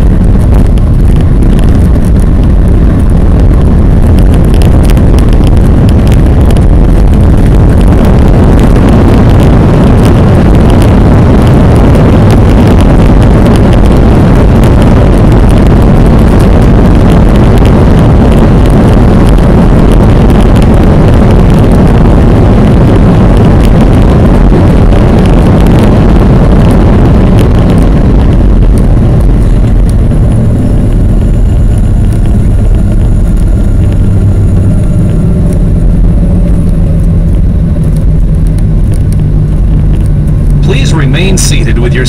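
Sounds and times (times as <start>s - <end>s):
jet engine and air rush: 27.5s - 42.0s.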